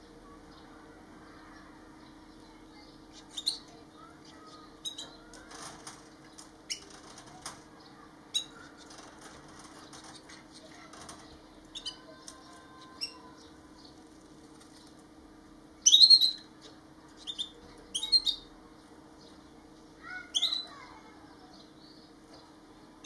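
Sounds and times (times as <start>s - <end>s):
faint low hum: 0.0s - 23.0s
finches chirping: 2.0s - 5.5s, 7.7s - 9.1s, 9.7s - 14.1s, 15.8s - 18.5s, 19.2s - 22.5s.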